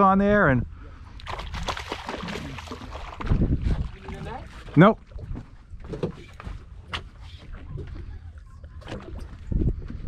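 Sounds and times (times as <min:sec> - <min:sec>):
water: 0:00.0 - 0:10.0
wind: 0:00.0 - 0:10.0.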